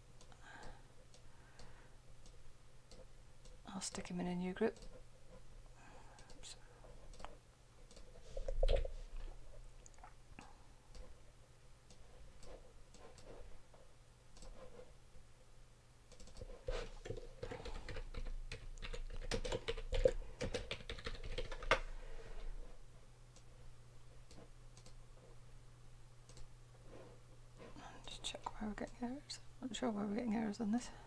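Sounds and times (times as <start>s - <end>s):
faint low steady hum: 0.0s - 31.0s
typing on computer keyboard: 16.1s - 21.9s.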